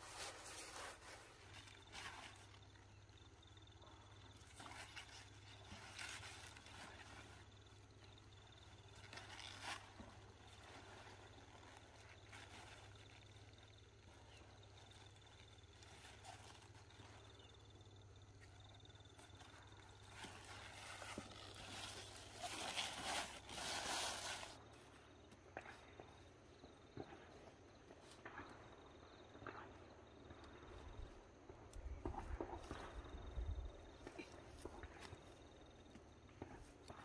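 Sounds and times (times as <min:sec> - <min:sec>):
rustling: 0:00.0 - 0:25.1.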